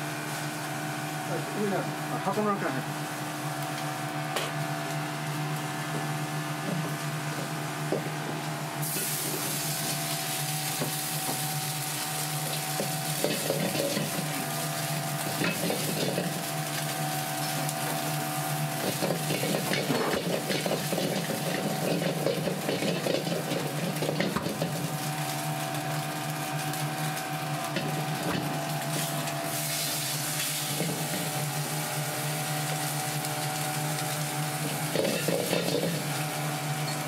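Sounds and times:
food sizzling in hot oil: 8.7s - 37.0s.

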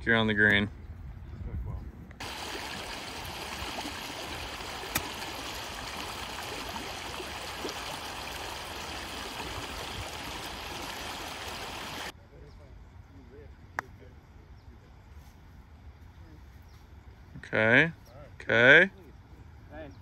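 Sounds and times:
running water rushing: 2.2s - 12.1s.

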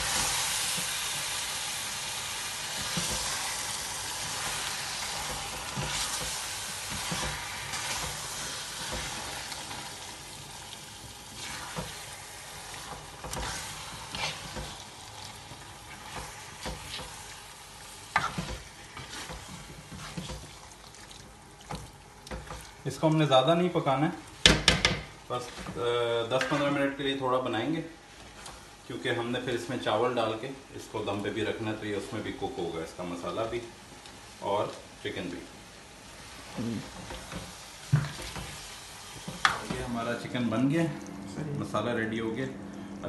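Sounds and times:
food sizzling in a pot: 0.0s - 27.5s, 31.2s - 40.8s
spatula scraping a pot: 12.8s - 14.8s, 18.1s - 20.5s.

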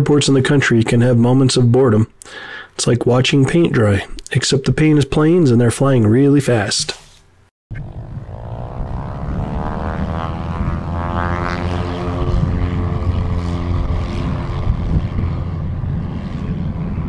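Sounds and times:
jet engines rumbling and whining: 7.7s - 17.0s.

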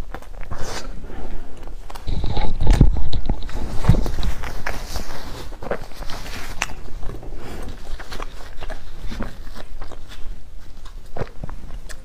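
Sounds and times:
low steady hum: 0.0s - 12.0s
tissue wiping mouth: 0.0s - 12.0s.

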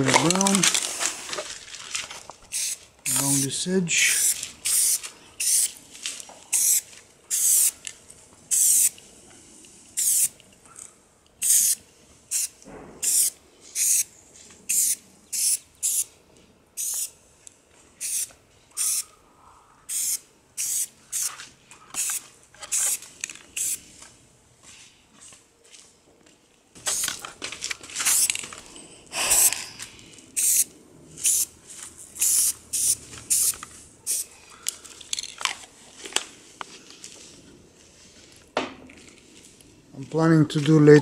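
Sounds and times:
spray paint can hissing: 2.5s - 3.4s, 4.1s - 5.8s, 6.5s - 7.8s, 8.5s - 9.0s, 10.0s - 10.4s, 11.4s - 14.1s, 14.7s - 16.1s, 16.8s - 17.2s, 18.0s - 19.0s, 19.9s - 23.0s, 23.6s - 23.8s, 26.8s - 27.2s, 28.0s - 28.4s, 29.2s - 29.6s, 30.4s - 34.3s.

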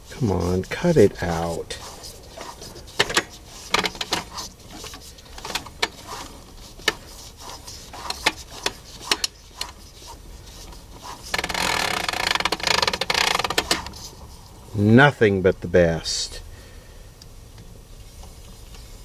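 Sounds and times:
loud scratchy rasping: 0.0s - 14.3s.

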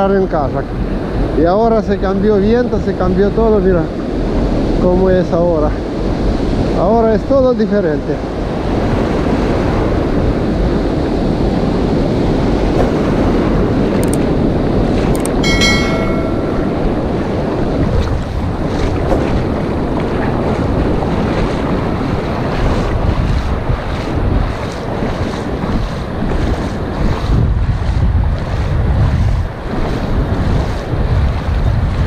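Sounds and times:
surf breaking on a beach: 0.0s - 32.0s
wind buffeting the microphone: 0.0s - 32.0s
short chime: 15.4s - 17.6s.

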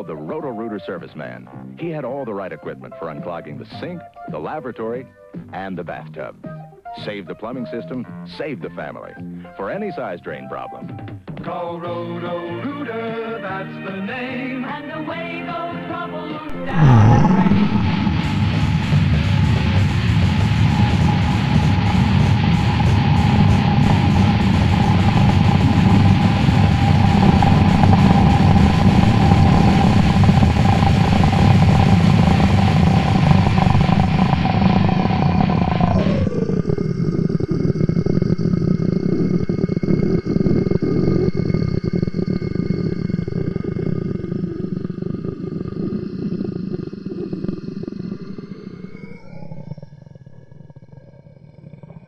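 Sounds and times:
held tones: 16.5s - 50.4s
distorted noise wall: 16.5s - 52.0s
steady high drone: 16.5s - 52.0s.

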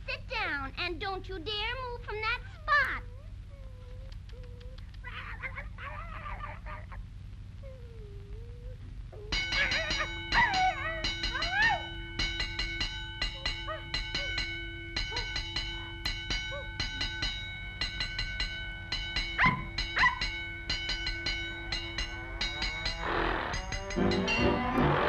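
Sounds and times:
cartoon puppy whimpering and yipping: 2.5s - 7.0s, 7.7s - 11.9s
cartoon music ringing notes: 9.3s - 25.0s.

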